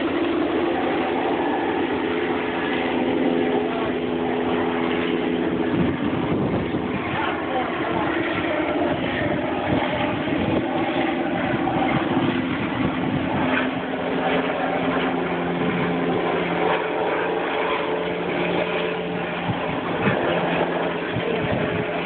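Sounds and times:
helicopter engine and rotor drone: 0:00.0 - 0:22.0.

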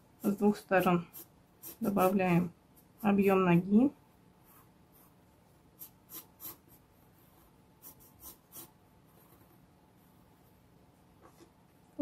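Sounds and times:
pencil strokes on paper: 0:00.0 - 0:03.5, 0:04.4 - 0:10.4.

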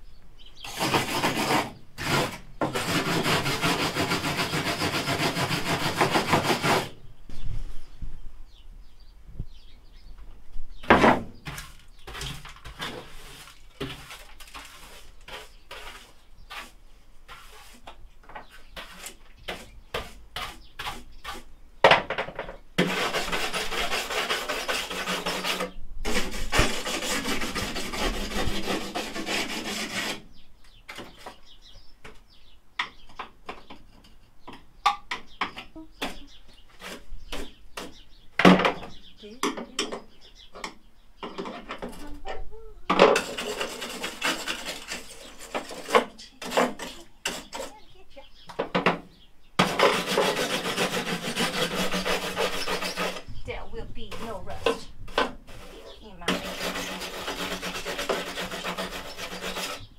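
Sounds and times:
hand scraping on ribbed steel: 0:11.5 - 0:21.5, 0:43.2 - 0:48.4, 0:49.6 - 0:59.9.

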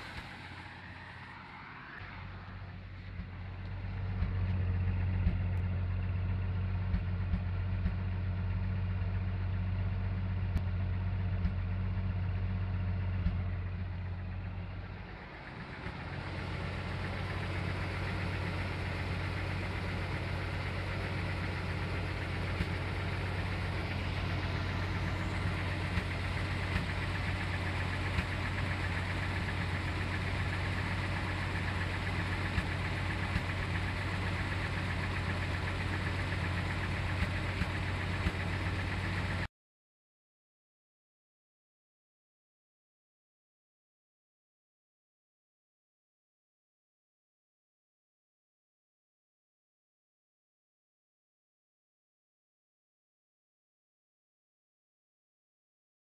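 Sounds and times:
engine idling with misfire pops: 0:00.0 - 0:39.5.

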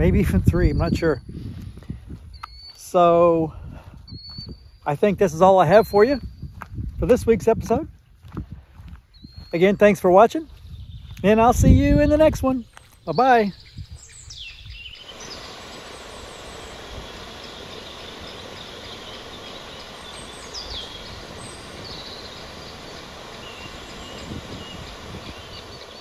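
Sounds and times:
bird chirps: 0:02.3 - 0:03.2, 0:04.0 - 0:06.6, 0:09.1 - 0:11.4, 0:12.6 - 0:26.0
water rushing through spillway: 0:15.1 - 0:26.0.

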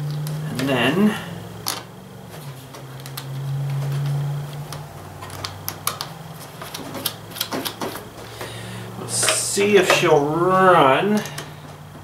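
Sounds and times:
steady low hum: 0:00.0 - 0:12.0
hand tools clicking and tapping: 0:02.7 - 0:10.2, 0:11.1 - 0:11.8.

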